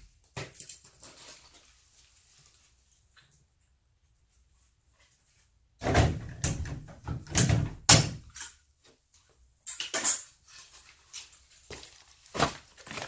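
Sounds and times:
knocks and clatters on wall: 0:05.8 - 0:08.3.

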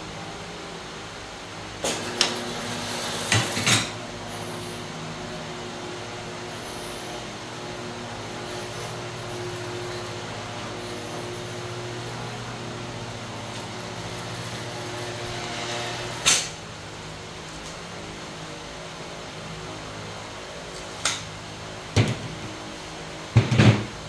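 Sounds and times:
machine motors humming: 0:00.0 - 0:18.5.

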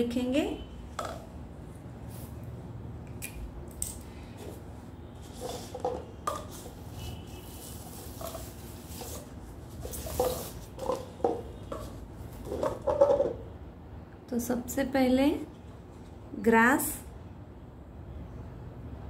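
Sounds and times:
paper cups tapping on table: 0:00.9 - 0:01.3, 0:05.3 - 0:06.9, 0:08.0 - 0:13.4.

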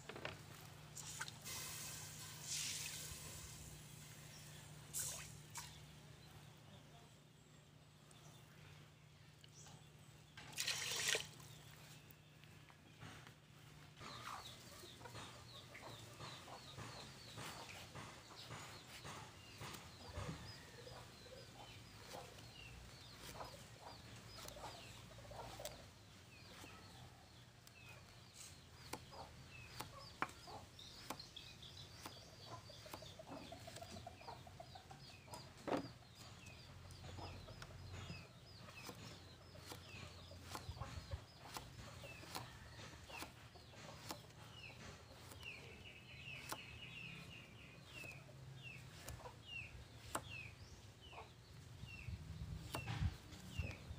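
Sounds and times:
chickens clucking: 0:11.5 - 0:53.9
knife slicing eggplant: 0:27.6 - 0:34.0, 0:37.8 - 0:50.6, 0:52.0 - 0:53.9
knife blade tapping wood: 0:38.8 - 0:47.0.

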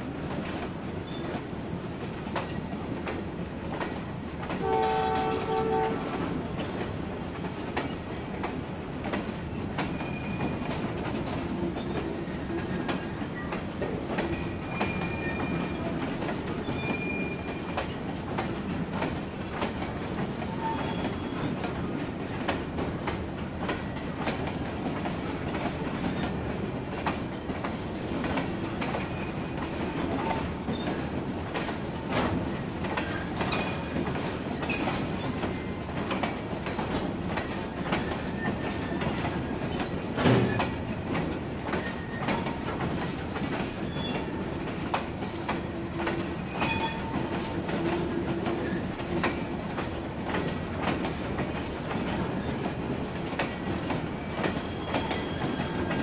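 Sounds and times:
freight train rolling past: 0:00.0 - 0:56.0
wheels clicking over rail joints: 0:00.1 - 0:56.0
train horn blast: 0:04.6 - 0:06.2
high wheel squeals: 0:20.2 - 0:21.5, 0:54.2 - 0:56.0.

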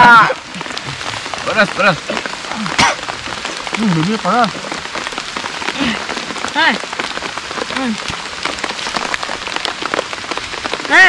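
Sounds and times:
people exclaiming: 0:00.0 - 0:00.4
steady rain pattering: 0:00.0 - 0:11.0.

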